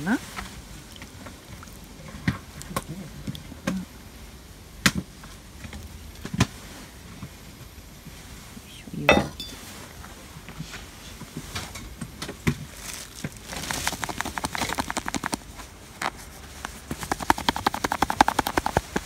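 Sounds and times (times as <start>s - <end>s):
ladle knocking against pot: 9.1s - 9.6s.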